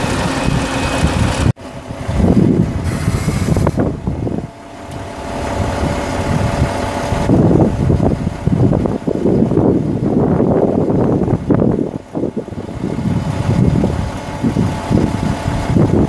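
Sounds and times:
diesel truck engine rumbling: 0:00.0 - 0:16.0
steady whine: 0:00.0 - 0:16.0
brief hiss: 0:02.8 - 0:03.8.

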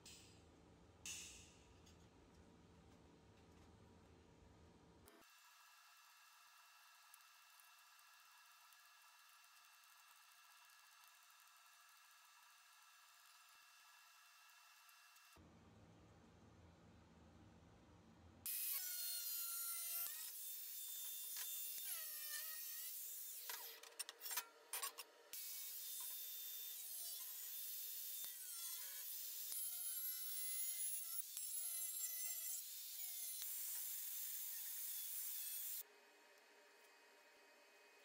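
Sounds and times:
angle grinder cutting steel: 0:18.5 - 0:35.8.

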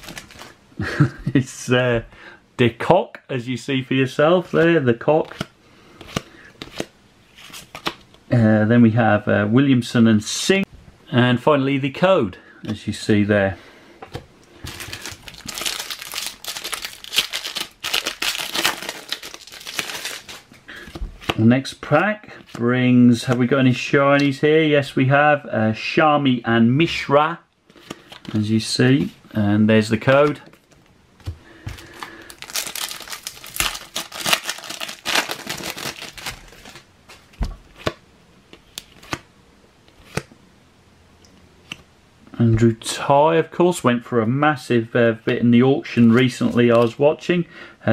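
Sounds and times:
wrapper crinkling: 0:00.0 - 0:00.6, 0:14.6 - 0:20.6, 0:31.8 - 0:37.4.

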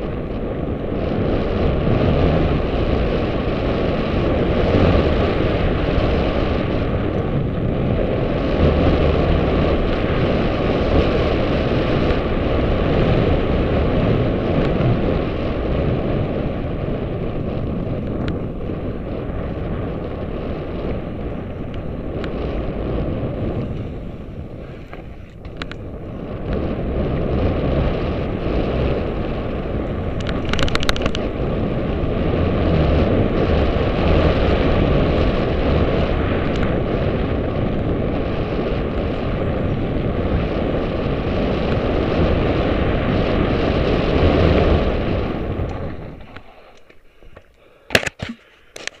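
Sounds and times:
wind buffeting microphone: 0:00.0 - 0:49.0
bike rattle: 0:19.5 - 0:36.9, 0:41.6 - 0:49.0.

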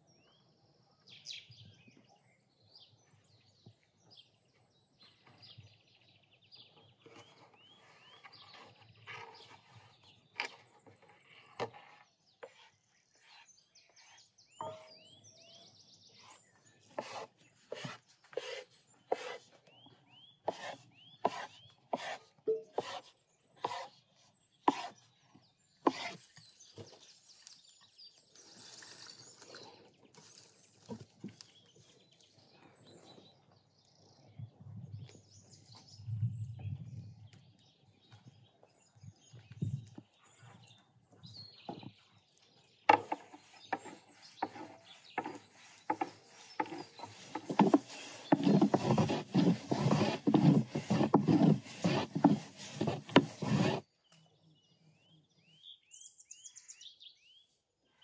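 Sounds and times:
birds chirping: 0:12.4 - 0:53.8.

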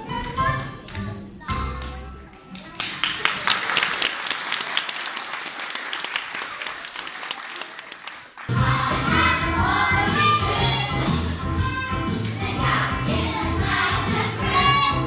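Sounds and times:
song backing track: 0:00.0 - 0:02.7, 0:08.5 - 0:15.0
audience applause: 0:02.6 - 0:08.5
young children singing: 0:08.5 - 0:15.0.

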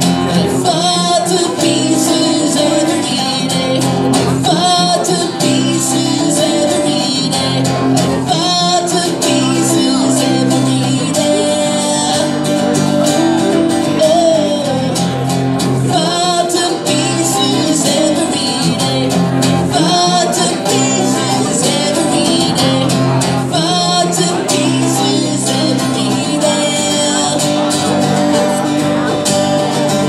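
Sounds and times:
electric bass: 0:00.0 - 0:01.0, 0:01.6 - 0:16.2
acoustic guitars: 0:00.0 - 0:30.0.

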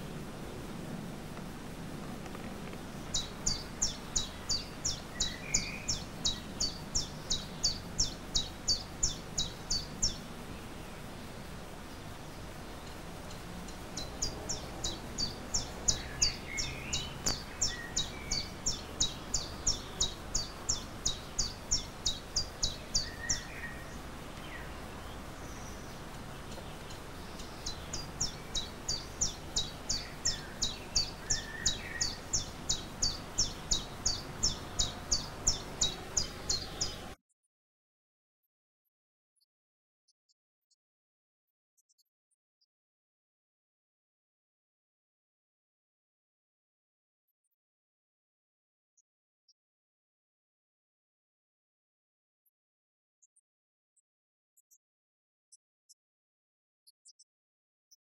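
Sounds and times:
small bird chirping rapidly: 0:02.8 - 0:37.2.

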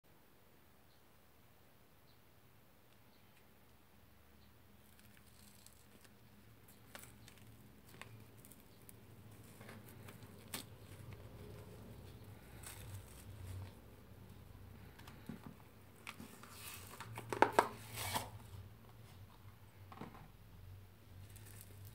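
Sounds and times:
dry slime crackling and tearing: 0:04.8 - 0:13.9, 0:21.2 - 0:21.9.

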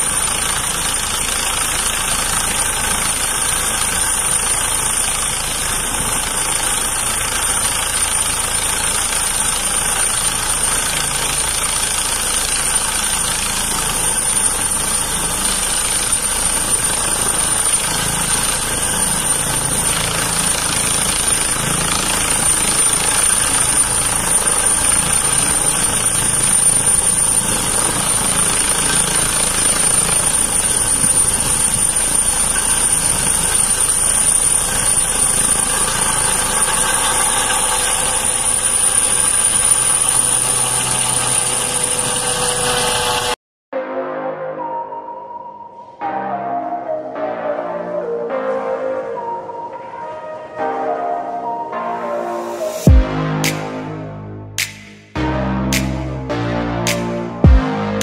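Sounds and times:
helicopter hovering: 0:00.0 - 0:43.4, 0:50.8 - 0:58.0.

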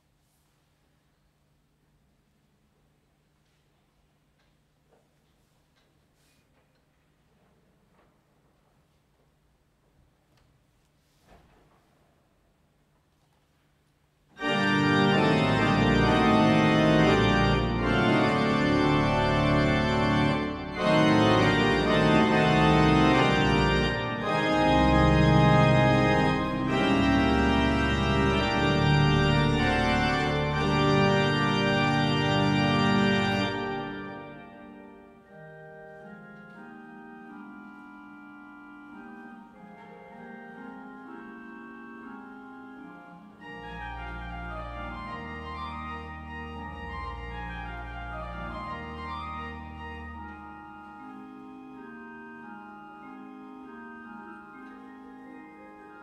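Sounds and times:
pipe organ playing chords: 0:14.2 - 0:56.0.

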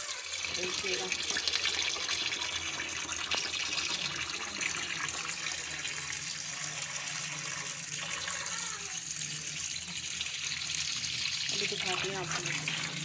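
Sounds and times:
tap water running into sink: 0:00.0 - 0:13.0.

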